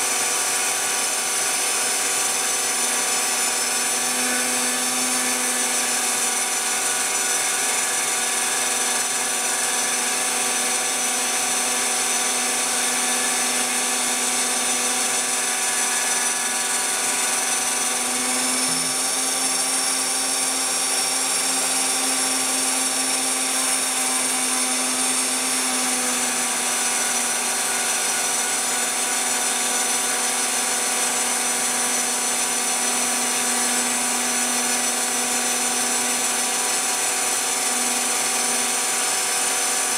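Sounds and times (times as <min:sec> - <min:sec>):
milling spindle whining: 0:00.0 - 0:39.9.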